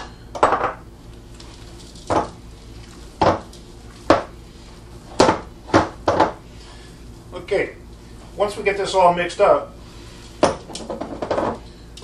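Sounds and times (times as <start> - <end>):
meat mixture mixed by hand: 1.0 - 7.1.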